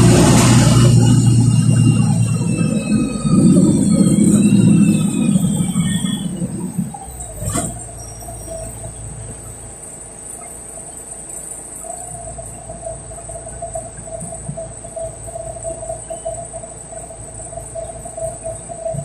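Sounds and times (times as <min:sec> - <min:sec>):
short sharp sound: 0:00.0 - 0:07.0
bus idling hum: 0:00.0 - 0:10.7
bus engine rumbling with whine: 0:00.0 - 0:19.0.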